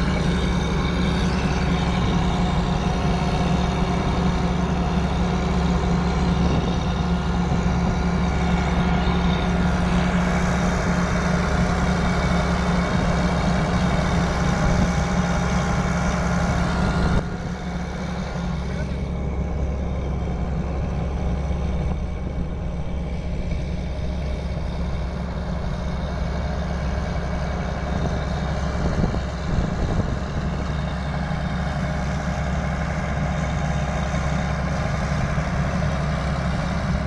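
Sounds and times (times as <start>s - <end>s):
truck engine heavy hum: 0.0s - 37.0s.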